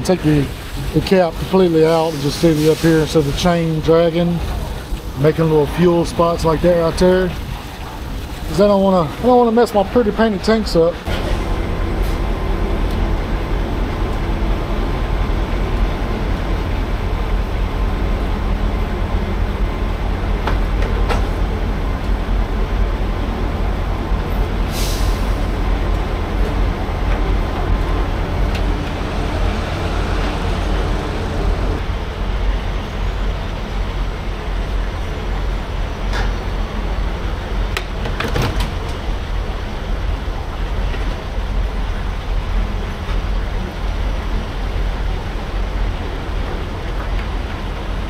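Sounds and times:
diesel truck engine rumbling: 0:00.0 - 0:48.0
air hiss burst: 0:01.8 - 0:03.4, 0:24.6 - 0:25.6.

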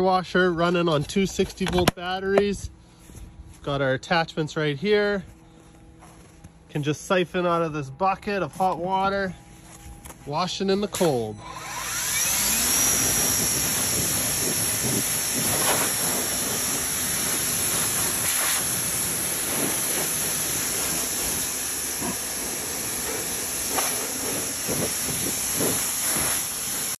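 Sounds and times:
pressure washer water jet hissing: 0:11.5 - 0:27.0.

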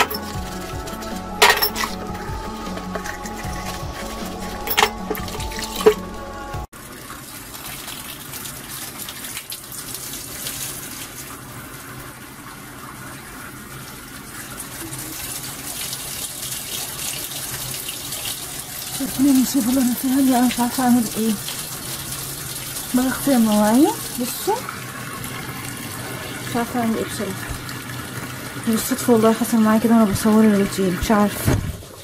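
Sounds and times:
glassware clinking: 0:00.0 - 0:00.4, 0:01.4 - 0:02.1, 0:04.6 - 0:06.0
running water from sink tap: 0:00.0 - 0:32.0.

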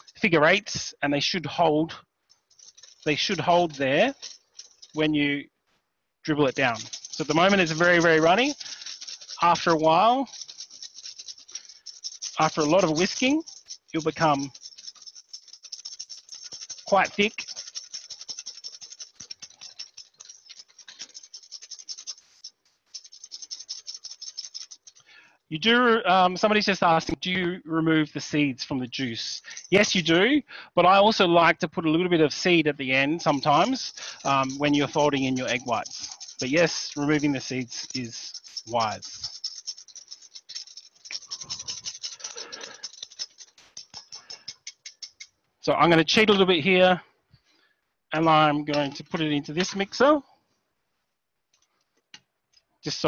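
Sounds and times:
whisk scraping metal bowl: 0:02.5 - 0:05.0, 0:06.3 - 0:25.1, 0:29.3 - 0:30.1, 0:33.0 - 0:45.3.

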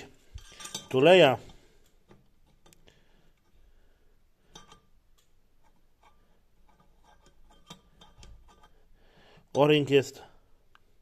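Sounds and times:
faint metallic clicks and scrapes: 0:00.0 - 0:03.6, 0:04.4 - 0:09.8.

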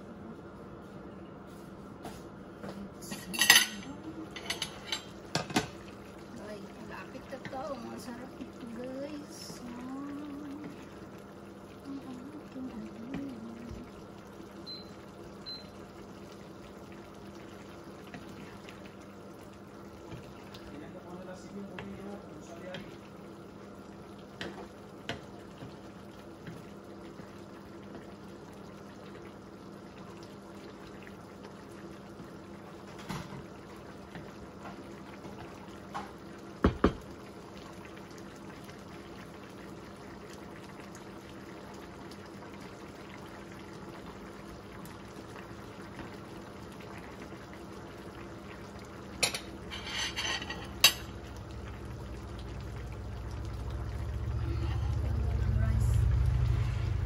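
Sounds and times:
sauce bubbling in pan: 0:03.8 - 0:57.0
wooden spatula knocking pan: 0:36.6 - 0:37.0.

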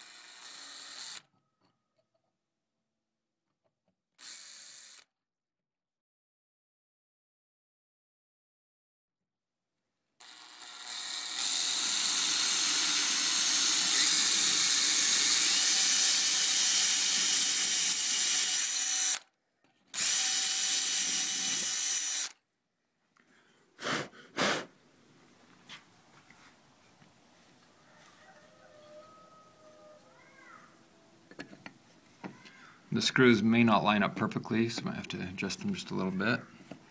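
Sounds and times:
power drill boring into stone: 0:00.0 - 0:01.3, 0:04.2 - 0:05.1, 0:10.2 - 0:19.3, 0:19.9 - 0:22.4.

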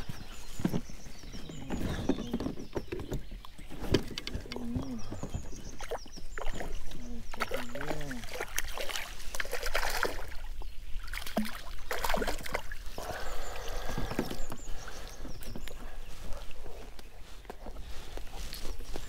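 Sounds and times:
knocks and clicks on boat: 0:00.0 - 0:07.8, 0:13.8 - 0:15.9
water splashing: 0:04.0 - 0:15.8.

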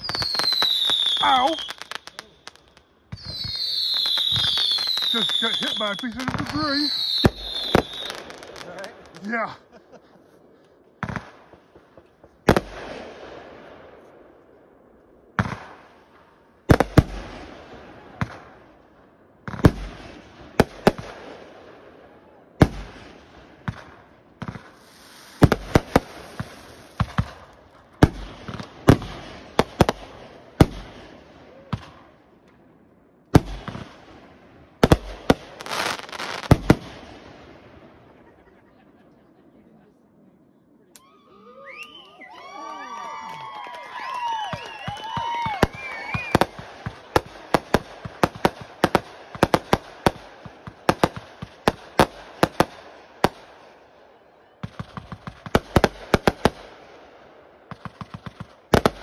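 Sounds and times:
fireworks hissing: 0:00.0 - 0:09.8, 0:24.5 - 0:27.3
fireworks bangs: 0:00.0 - 0:38.8, 0:42.0 - 0:53.8, 0:54.6 - 0:59.0.

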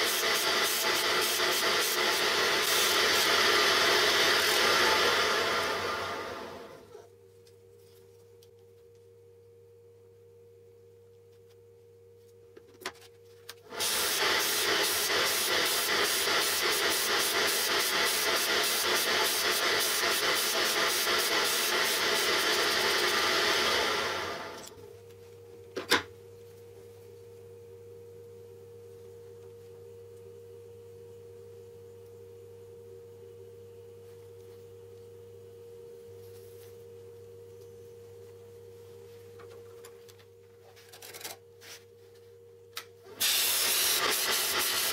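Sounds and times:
disc sander humming: 0:00.0 - 0:07.0, 0:13.7 - 0:24.8.

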